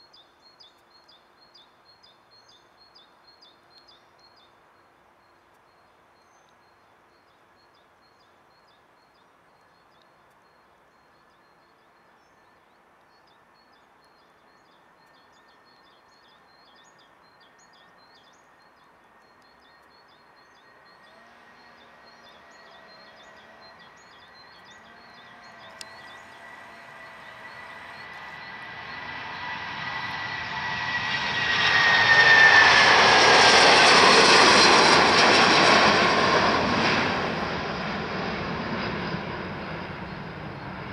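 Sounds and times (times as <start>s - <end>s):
jet airliner taking off: 20.9s - 40.9s.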